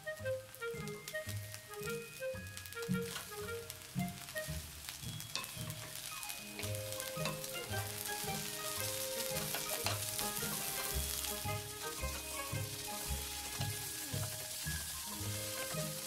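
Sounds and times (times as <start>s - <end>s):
background music with low beat: 0.0s - 16.0s
rice sizzling in a frying pan: 0.0s - 16.0s
wooden spatula scraping clicks: 2.7s - 3.5s, 5.2s - 7.6s, 9.2s - 11.4s.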